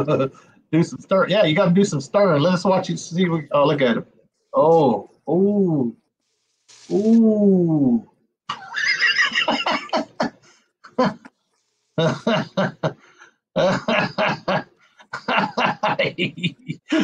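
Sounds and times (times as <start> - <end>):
person laughing: 8.5 - 11.3, 13.6 - 17.0.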